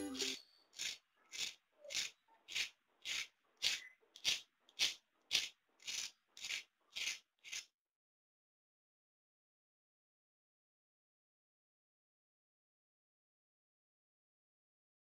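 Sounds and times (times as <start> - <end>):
fork scraping crunchy crust: 0.2 - 7.7.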